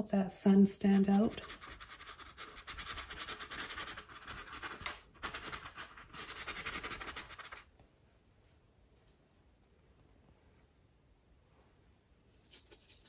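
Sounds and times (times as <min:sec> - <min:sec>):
paintbrush scrubbing on canvas: 0:00.9 - 0:07.7.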